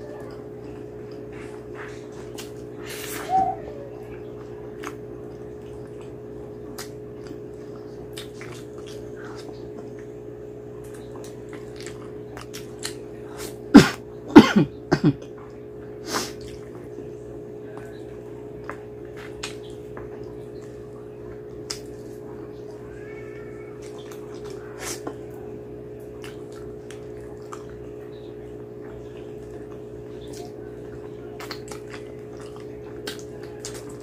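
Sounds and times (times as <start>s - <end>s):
chewing and lip-smacking: 0.0s - 13.7s, 15.2s - 34.0s
wet sucking slurps: 1.4s - 3.5s, 16.0s - 16.6s, 24.4s - 25.2s.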